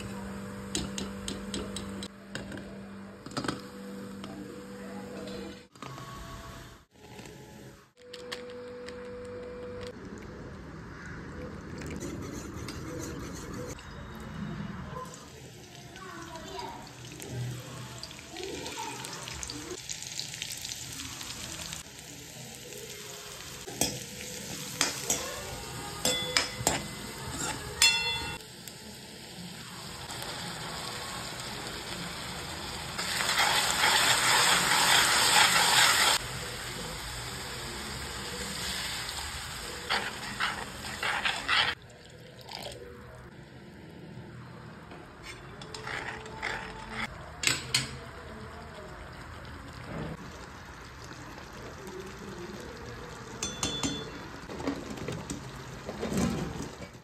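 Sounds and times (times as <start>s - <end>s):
food sizzling in a wok: 15.1s - 41.8s
metal spoon scraping wok: 33.0s - 36.2s, 39.8s - 41.8s, 45.2s - 47.2s.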